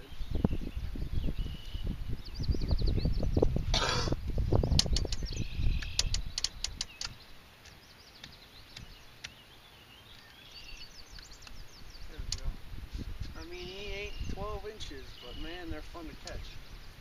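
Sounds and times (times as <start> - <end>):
small birds chirping: 0.0 - 17.0
sharp clicks: 4.7 - 9.4, 12.2 - 12.5, 16.2 - 16.4.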